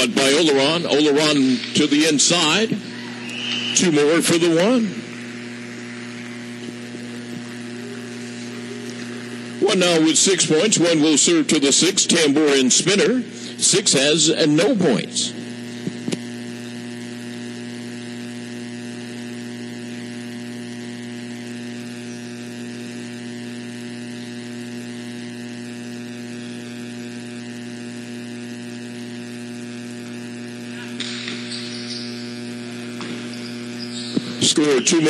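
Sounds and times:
electrical mains hum: 0:00.0 - 0:35.0.

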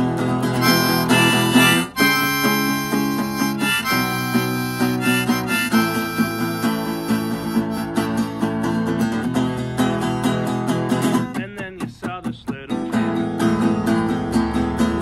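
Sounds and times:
strummed acoustic guitar: 0:00.0 - 0:15.0
harmonica playing held notes: 0:00.6 - 0:08.8.

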